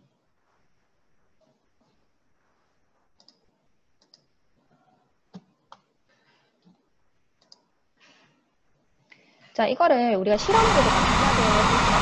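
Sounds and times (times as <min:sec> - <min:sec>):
faint computer mouse clicks: 0:03.2 - 0:04.3, 0:07.4 - 0:07.7.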